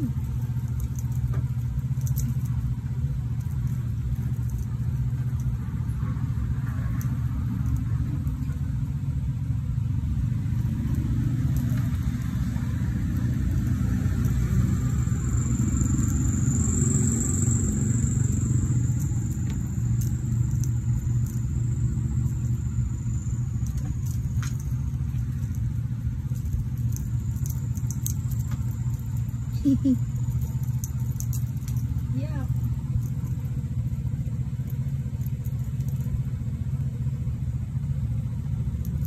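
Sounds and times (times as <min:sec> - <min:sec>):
faint scattered clicks: 0:00.0 - 0:02.7, 0:23.2 - 0:33.4
low rumble: 0:00.0 - 0:39.0.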